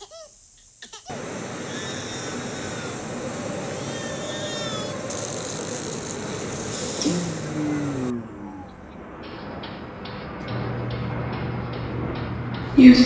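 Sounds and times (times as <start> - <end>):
hissing rustling noise: 0.0 - 10.0
high downward chirps: 0.8 - 10.5
low falling tones: 1.1 - 13.0.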